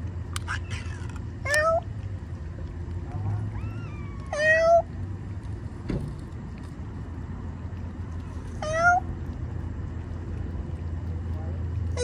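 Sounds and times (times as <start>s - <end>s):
cat meowing: 0.4s - 1.9s, 3.2s - 4.9s, 8.6s - 9.1s.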